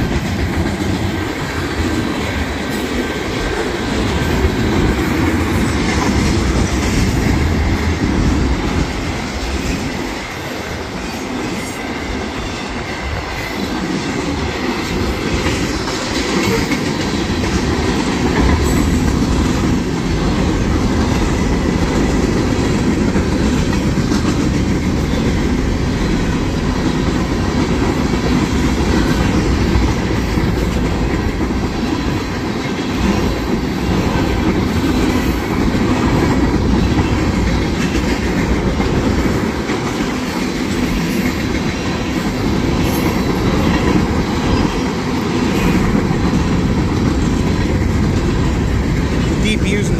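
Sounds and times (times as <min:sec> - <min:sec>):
freight train rumble: 0:00.0 - 0:49.9.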